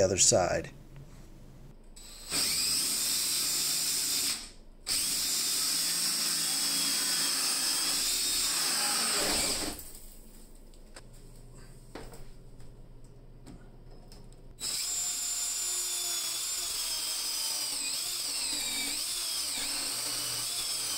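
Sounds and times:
cordless drill with hole saw: 2.0s - 9.8s, 14.6s - 20.9s.

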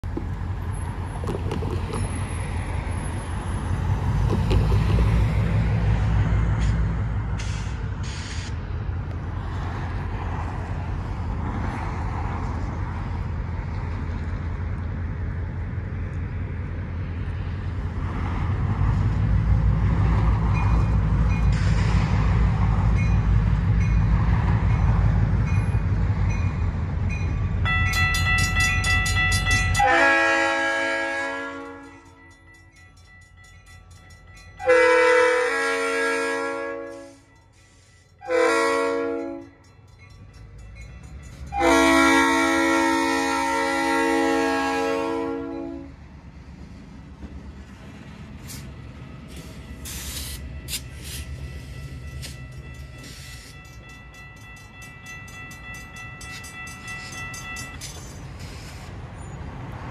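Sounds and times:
road traffic rumble: 0.0s - 59.9s
railroad crossing bell ringing: 20.3s - 21.8s, 22.5s - 45.9s, 48.7s - 59.5s.

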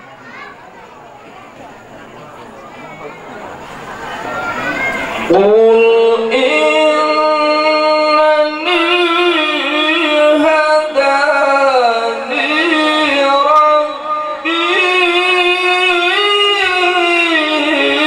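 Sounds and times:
man reciting melodically: 5.3s - 18.0s.

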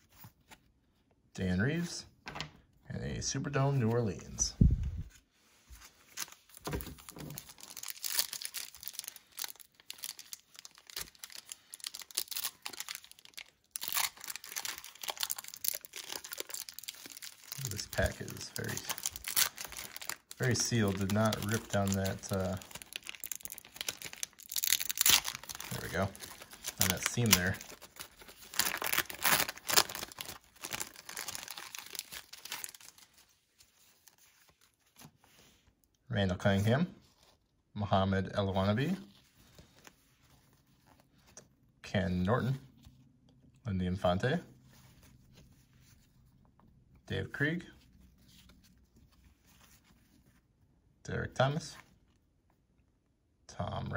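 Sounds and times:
wrapper crinkling and tearing: 6.1s - 35.1s.

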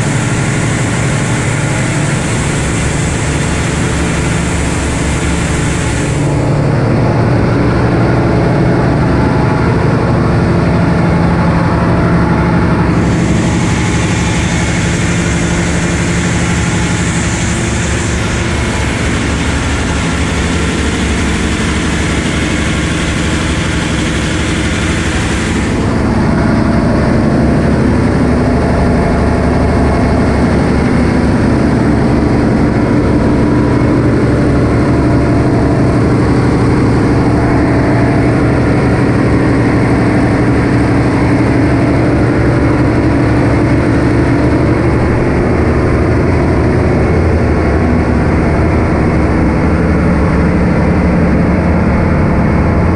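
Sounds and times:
hiss: 0.0s - 6.4s, 12.8s - 26.2s
diesel machinery droning: 0.0s - 52.9s.

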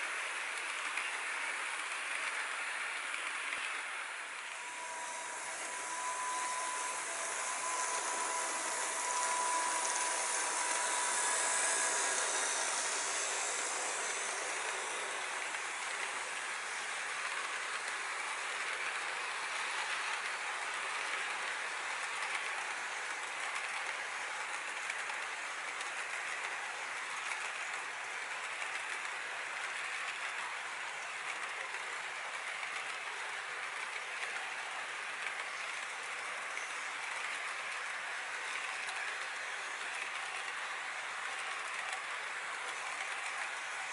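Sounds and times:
electric motors whining: 4.4s - 20.4s.

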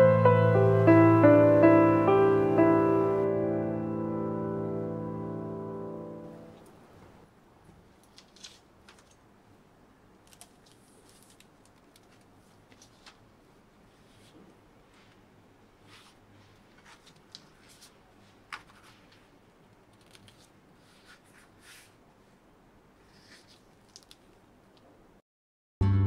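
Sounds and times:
plastic book cover rustling: 7.8s - 9.2s, 10.3s - 15.2s, 15.8s - 22.0s, 23.0s - 24.3s.

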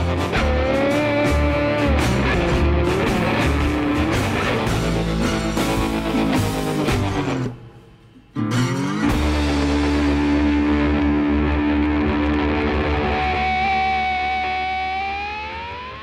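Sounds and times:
rock music on electric guitar: 0.0s - 7.7s, 8.4s - 16.0s.

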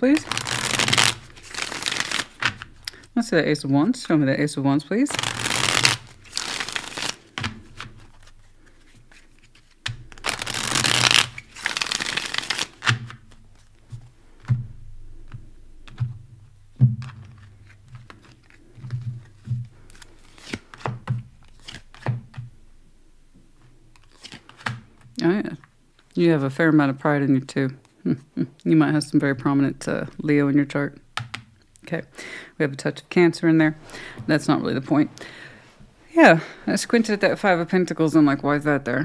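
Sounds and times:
deck of cards being shuffled: 0.1s - 3.0s, 5.1s - 14.5s, 17.0s - 22.4s, 24.0s - 24.8s.

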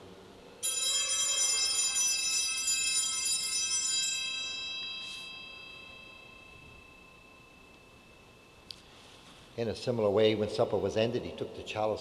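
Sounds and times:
small bells shaken: 0.6s - 8.2s.

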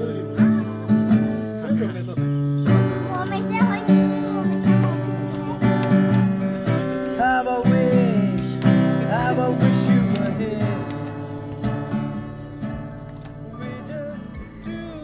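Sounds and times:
acoustic guitar strummed: 0.0s - 15.0s.

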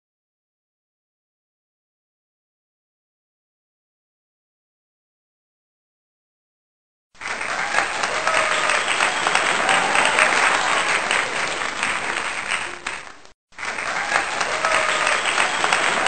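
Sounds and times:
audience clapping: 7.2s - 16.0s.

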